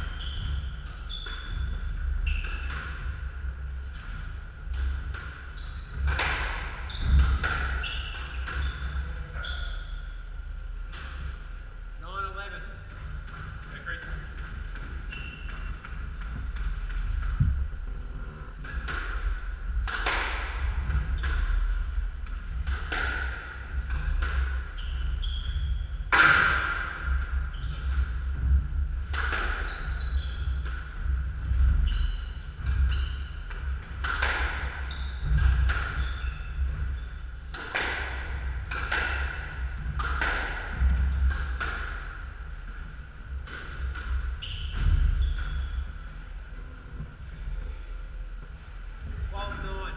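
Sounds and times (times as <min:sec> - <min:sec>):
shoes squeaking on wooden floor: 0:00.0 - 0:03.2, 0:06.8 - 0:10.0, 0:14.9 - 0:19.8, 0:24.7 - 0:25.8, 0:29.6 - 0:37.4, 0:43.5 - 0:46.1.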